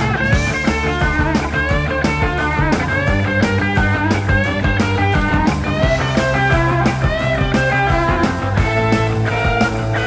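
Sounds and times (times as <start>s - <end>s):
hard rock music from vinyl: 0.0s - 10.0s.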